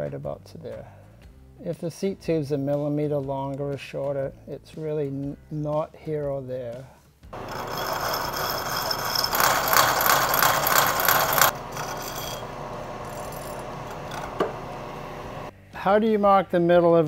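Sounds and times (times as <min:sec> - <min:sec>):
hole saw cutting steel: 0:07.4 - 0:15.5
machine spindle running: 0:07.4 - 0:15.5.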